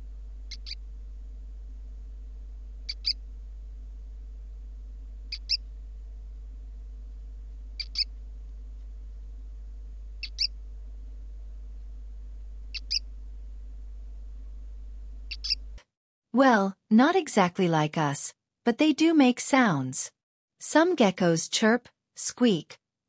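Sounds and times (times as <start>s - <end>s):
steady low hum: 0.0s - 15.8s
gecko chirping: 0.5s - 0.8s, 2.8s - 3.2s, 5.3s - 5.7s, 7.8s - 8.1s, 10.2s - 10.6s, 12.7s - 13.1s, 15.3s - 15.6s.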